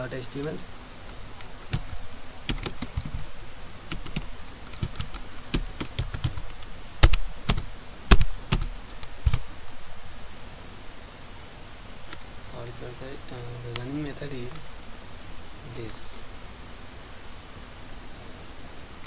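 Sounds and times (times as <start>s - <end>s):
computer keyboard typing: 0.3s - 3.3s, 3.9s - 9.4s.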